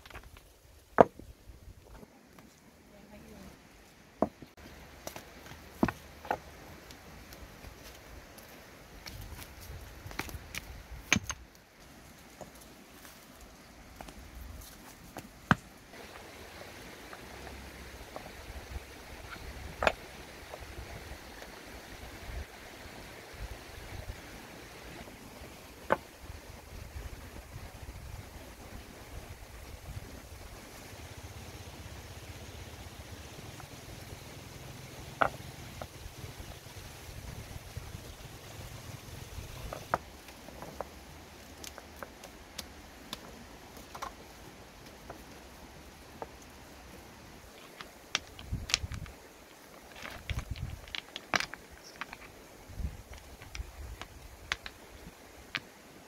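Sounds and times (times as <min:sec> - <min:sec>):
stones knocking together: 0:00.0 - 0:02.5, 0:04.2 - 0:11.6, 0:14.0 - 0:16.2, 0:19.1 - 0:21.6, 0:25.7 - 0:26.1, 0:35.2 - 0:36.0, 0:39.4 - 0:45.3, 0:47.4 - 0:55.8.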